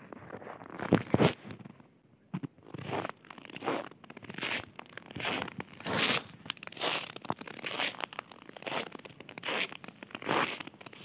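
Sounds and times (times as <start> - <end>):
footsteps crunching in snow: 2.3 - 11.0.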